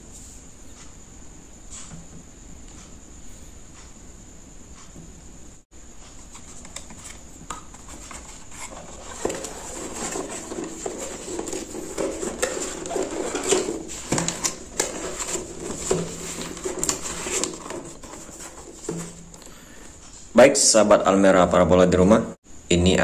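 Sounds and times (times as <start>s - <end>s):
cardboard box scraping and rustling: 6.2s - 19.4s.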